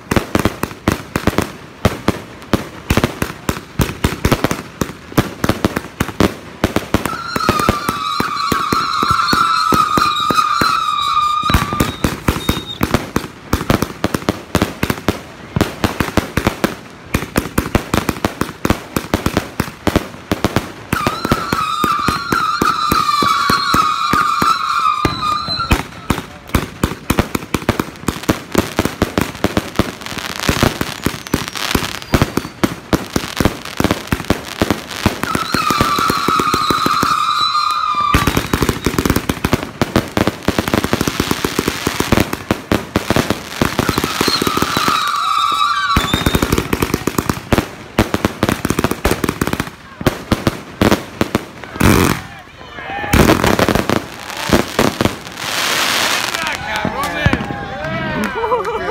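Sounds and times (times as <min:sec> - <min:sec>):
fireworks shots and bursts: 0:00.0 - 0:58.9
wavering high whistle: 0:07.1 - 0:12.8, 0:21.0 - 0:26.1, 0:35.2 - 0:39.0, 0:43.8 - 0:46.6.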